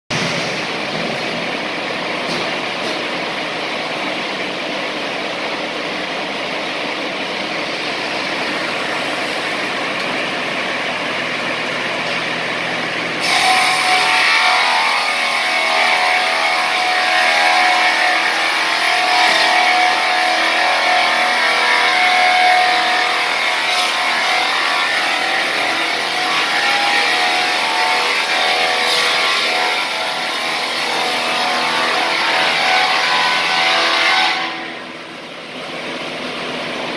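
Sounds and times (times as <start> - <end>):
multi-blade saw machine running: 0.1 - 36.9
saw blades whining through log: 7.2 - 34.8.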